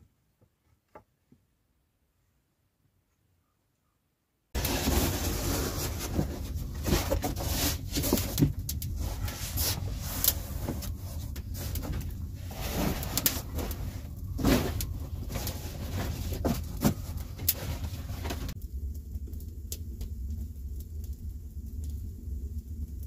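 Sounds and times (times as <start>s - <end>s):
foam mat rustling: 4.6s - 18.6s
low rumble: 4.6s - 23.0s
wood fire crackling and popping: 4.6s - 23.0s.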